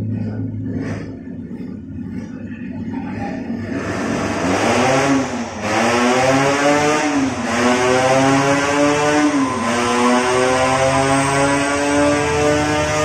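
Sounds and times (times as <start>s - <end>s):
two-stroke racing engine revving: 3.6s - 13.0s.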